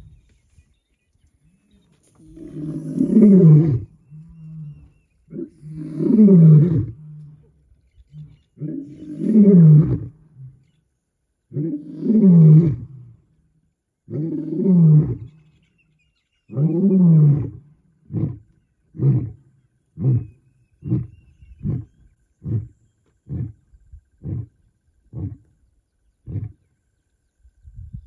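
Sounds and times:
lion roaring: 0:02.2 - 0:07.5, 0:08.1 - 0:10.6, 0:16.5 - 0:25.5.

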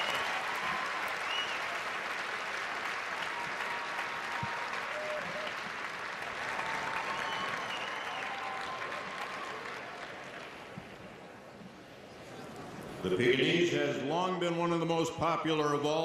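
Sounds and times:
arena crowd applauding: 0:00.0 - 0:11.5.

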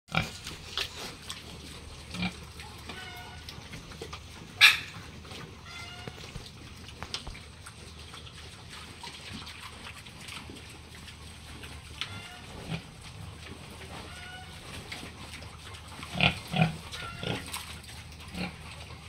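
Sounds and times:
pig squealing: 0:00.1 - 0:06.4, 0:11.7 - 0:13.0, 0:13.6 - 0:15.2, 0:15.8 - 0:18.8
pigs grunting: 0:00.1 - 0:19.0
pigs rooting at floor: 0:00.1 - 0:19.0.

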